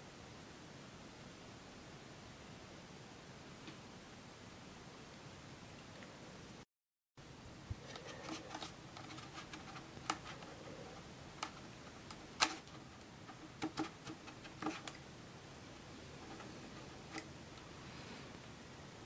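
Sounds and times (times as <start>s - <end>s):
sharp plastic clicks: 11.4s - 15.0s.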